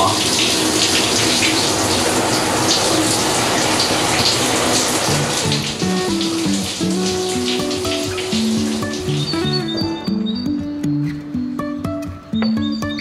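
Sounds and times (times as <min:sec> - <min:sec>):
shower water spraying: 0:00.0 - 0:09.9
background music simple melody: 0:02.9 - 0:13.0.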